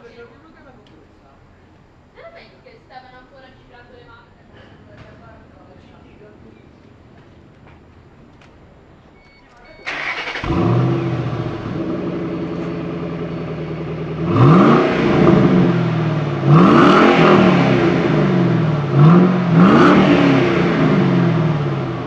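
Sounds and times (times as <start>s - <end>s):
car engine idling and revving: 9.9s - 22.0s.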